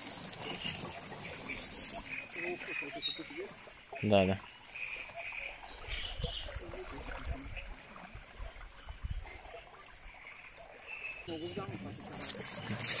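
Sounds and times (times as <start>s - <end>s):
water trickling and lapping: 0.0s - 13.0s.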